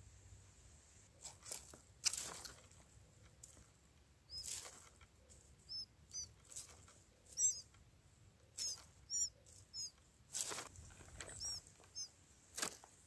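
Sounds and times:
rustling: 0.3s - 13.0s
nestlings begging cheeps: 4.3s - 4.7s, 5.6s - 6.4s, 7.2s - 7.7s, 8.5s - 10.0s, 11.0s - 12.2s.

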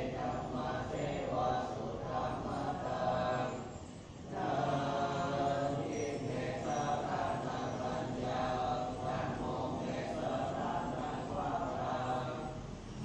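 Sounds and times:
monks chanting in unison: 0.0s - 13.0s.

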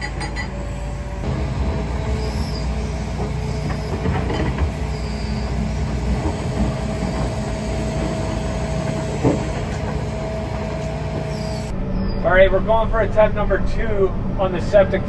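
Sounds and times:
excavator diesel engine whine: 0.0s - 15.0s
loud clunk: 1.2s - 11.6s.

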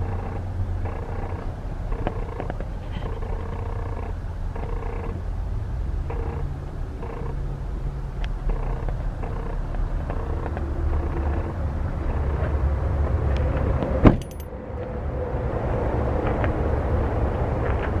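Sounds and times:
truck engine idling: 0.0s - 14.4s
car door shutting: 14.0s - 14.3s.

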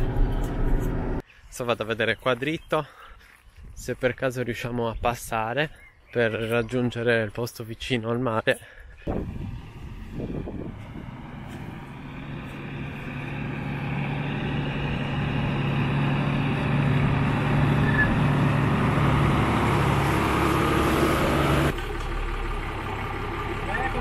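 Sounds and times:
truck engine running at low speed: 0.0s - 1.2s, 9.1s - 24.0s.

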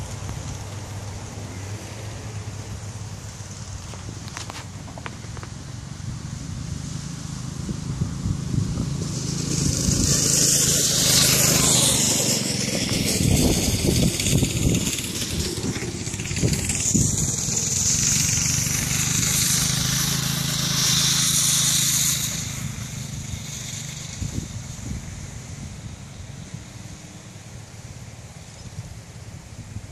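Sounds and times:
go-kart engine running: 0.0s - 29.9s.

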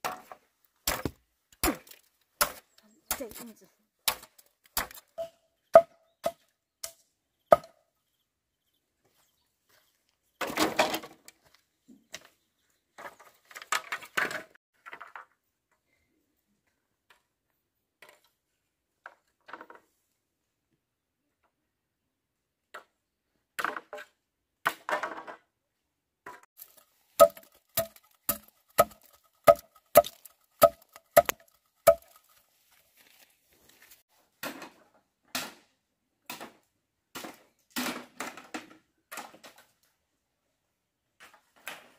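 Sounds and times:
blade chopping into log: 0.8s - 3.4s, 26.6s - 32.2s
rustling and handling noise: 31.2s - 34.3s.

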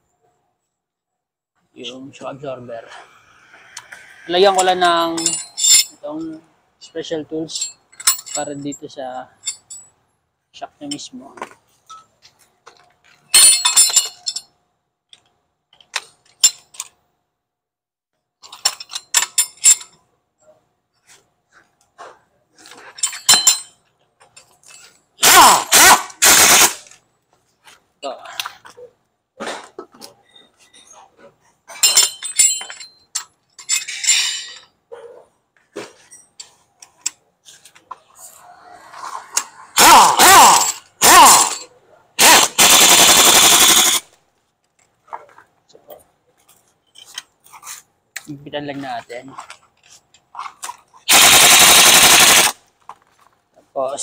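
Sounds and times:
metal tools clinking: 4.4s - 10.0s, 10.8s - 17.0s, 18.4s - 25.2s, 29.5s - 34.9s, 35.6s - 38.4s, 40.2s - 41.8s, 44.7s - 48.3s
metal clamps clanking: 4.5s - 6.4s, 7.4s - 10.0s, 10.9s - 17.0s, 18.4s - 20.1s, 22.6s - 25.0s, 29.4s - 34.8s
air impact wrench hammering: 25.2s - 26.9s, 39.8s - 41.6s, 42.2s - 44.0s, 51.1s - 52.6s.

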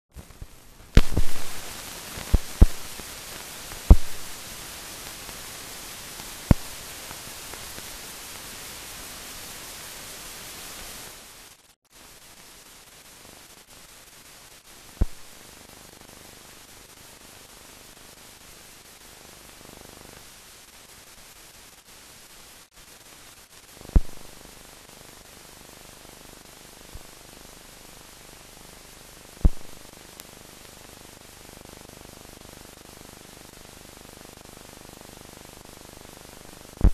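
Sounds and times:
film soundtrack hiss: 0.1s - 36.9s
sharp pops and clicks: 0.2s - 4.4s, 6.2s - 7.9s, 15.0s - 15.3s, 23.9s - 24.3s, 29.4s - 31.0s.

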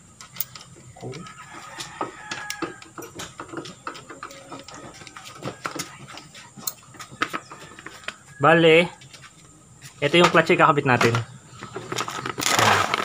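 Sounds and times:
metal parts clicking: 0.2s - 1.3s.

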